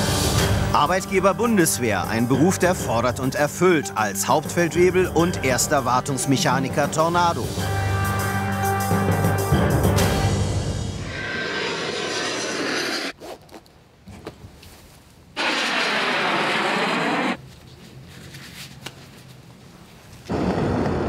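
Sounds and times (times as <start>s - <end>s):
jet engine rush bursts: 10.9s - 13.2s, 15.4s - 17.4s
zipper: 12.4s - 13.8s
clothing rustle: 13.2s - 15.3s, 17.4s - 20.2s.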